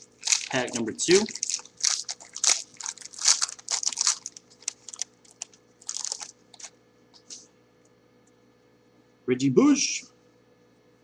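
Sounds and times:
foil wrapper tearing and crinkling: 0.0s - 6.7s.

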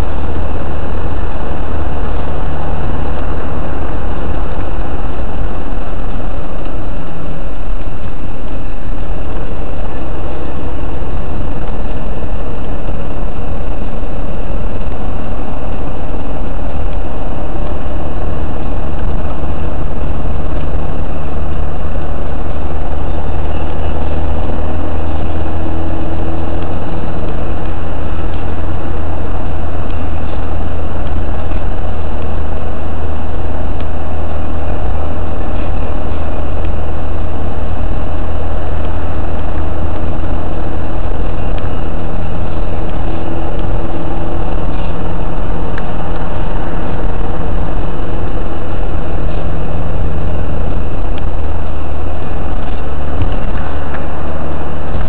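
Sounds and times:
car engine and road noise: 0.0s - 55.0s.

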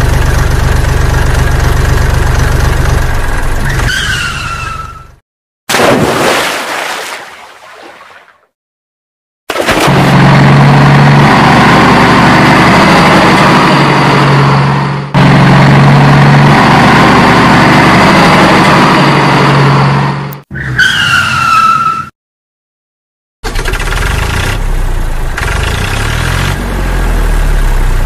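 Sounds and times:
tyres skidding: 0.0s - 5.2s, 10.2s - 22.1s
racing car engine: 23.4s - 28.0s.

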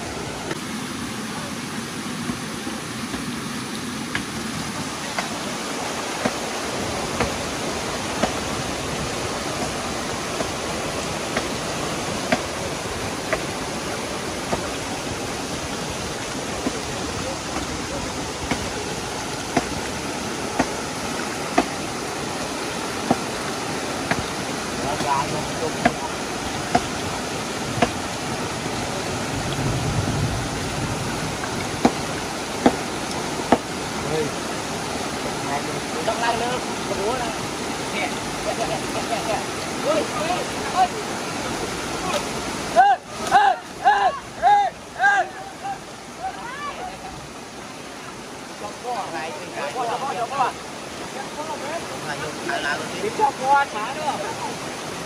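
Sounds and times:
rushing stream water: 0.0s - 55.0s
chopping blows on tree trunk: 4.1s - 4.4s, 5.1s - 5.4s, 6.2s - 6.5s, 8.1s - 8.5s, 12.2s - 12.5s, 18.4s - 18.7s, 19.5s - 19.8s, 20.5s - 20.8s, 21.5s - 21.8s, 23.0s - 23.3s, 24.0s - 24.3s, 26.7s - 26.9s, 27.8s - 28.0s, 31.8s - 32.9s, 33.5s - 33.8s.

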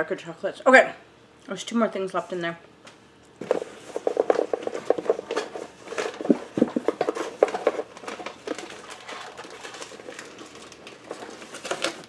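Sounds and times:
cardboard and wrappers rustling: 3.4s - 12.0s.

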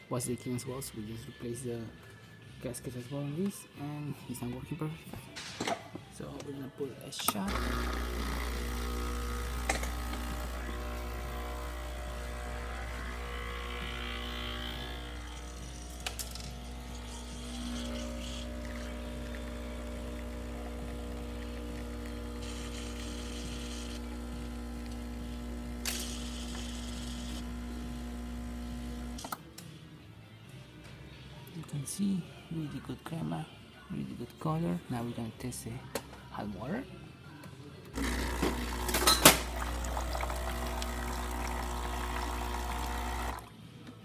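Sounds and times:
espresso machine pump humming: 7.5s - 29.2s, 38.0s - 43.5s.

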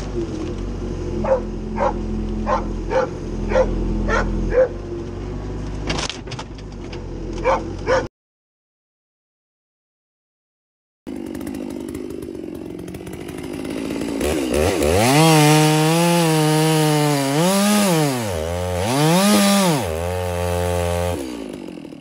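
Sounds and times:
chainsaw revving: 11.1s - 22.0s.

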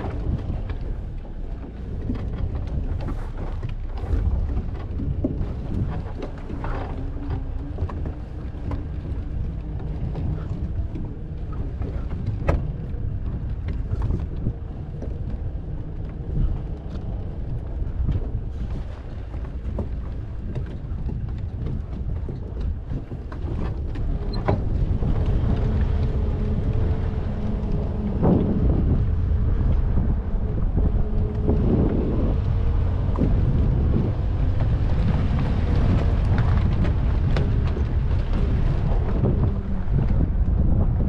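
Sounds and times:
knocks and rattles from bumps: 0.0s - 29.2s
engine hum: 0.0s - 41.0s
vehicle low rumble: 0.0s - 41.0s
wind buffeting microphone: 0.0s - 41.0s.

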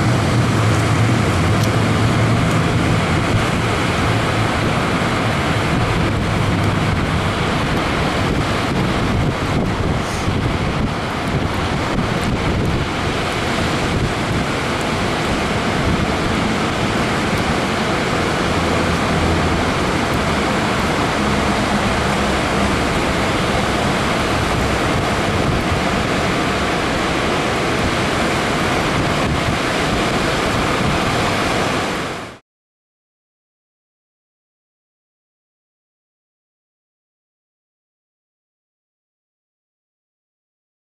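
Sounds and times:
wind buffeting microphone: 0.0s - 32.2s
water rushing over a dam: 0.0s - 32.4s.

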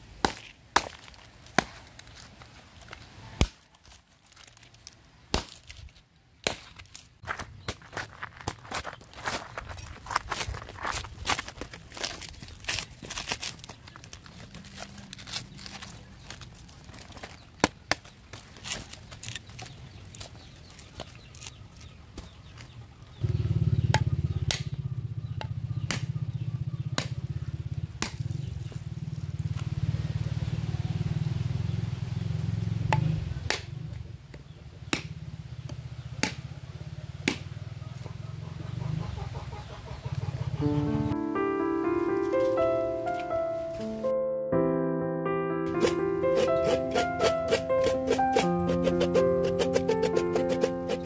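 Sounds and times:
coconut husk tearing: 0.1s - 22.4s, 45.7s - 51.0s
knife striking coconut: 25.4s - 26.1s, 27.0s - 27.2s, 35.7s - 36.5s, 37.2s - 37.5s.

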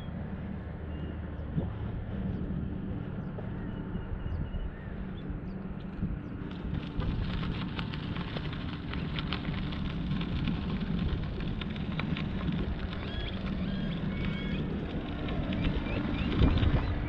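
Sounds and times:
wind buffeting microphone: 0.0s - 17.0s
bicycle tyres rolling on dirt: 5.9s - 17.0s
bike clicks and rattles: 6.4s - 17.0s.

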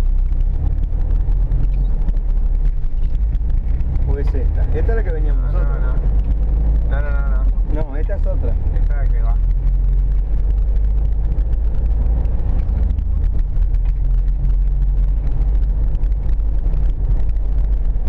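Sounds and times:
car engine and tyres cruising: 0.0s - 18.0s.

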